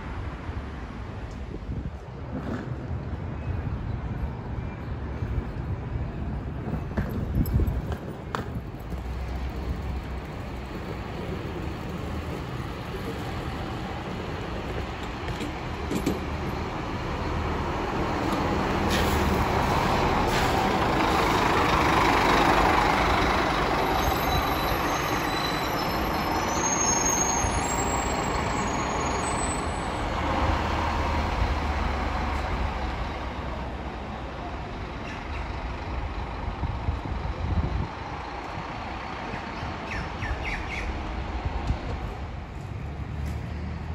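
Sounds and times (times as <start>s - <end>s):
bus passing by: 0.0s - 43.9s
buses humming: 0.0s - 43.9s.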